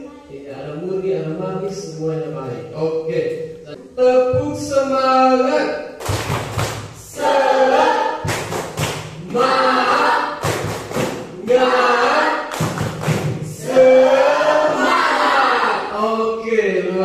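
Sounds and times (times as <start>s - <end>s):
students singing together: 6.8s - 17.0s
sharp thumps on the beat: 8.0s - 11.7s, 12.5s - 13.6s.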